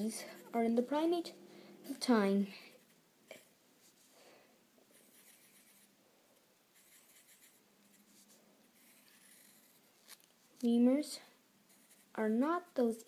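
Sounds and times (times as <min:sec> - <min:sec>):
pen scratching on paper: 0:04.9 - 0:05.9, 0:06.8 - 0:10.2, 0:11.7 - 0:12.8.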